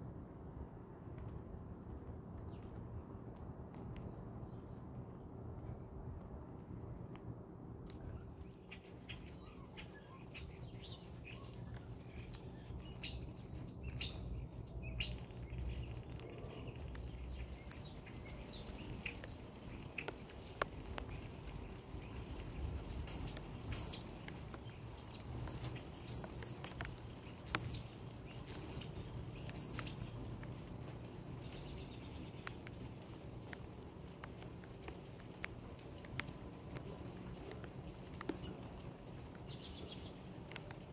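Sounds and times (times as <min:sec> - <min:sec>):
low outdoor background: 0:00.0 - 0:40.9
small birds chirping: 0:07.8 - 0:40.9.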